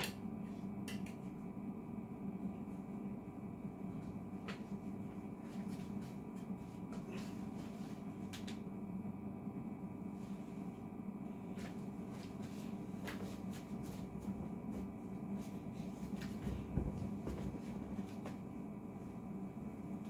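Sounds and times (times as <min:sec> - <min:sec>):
low room hum: 0:00.0 - 0:20.0.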